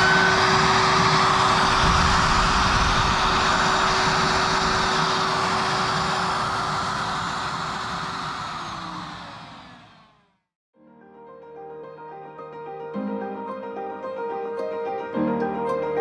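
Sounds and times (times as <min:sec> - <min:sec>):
electric router running: 0:00.0 - 0:10.4.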